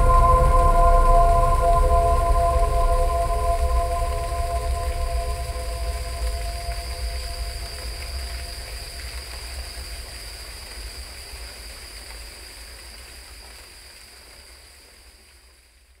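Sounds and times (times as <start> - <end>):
waterfall rushing: 0.0 - 9.8.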